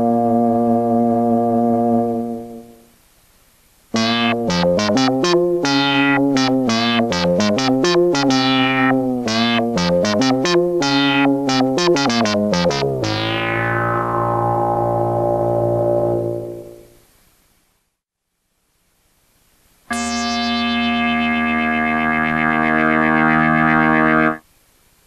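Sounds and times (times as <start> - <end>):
synthesizer bass notes: 4.0 - 16.9, 19.9 - 24.4.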